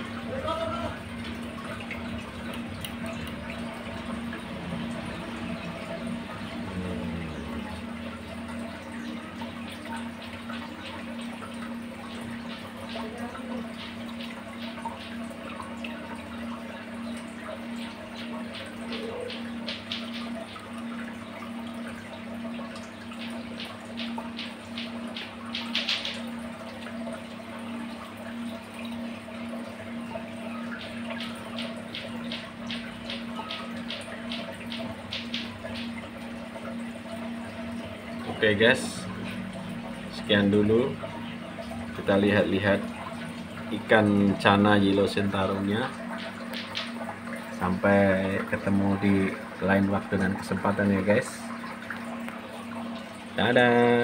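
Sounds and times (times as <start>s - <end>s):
aquarium water splashing: 0.0s - 54.0s
steady low hum: 0.0s - 54.0s
short splashy ticks: 1.2s - 4.2s, 18.1s - 21.0s, 22.7s - 27.2s, 30.7s - 37.9s, 45.9s - 47.8s.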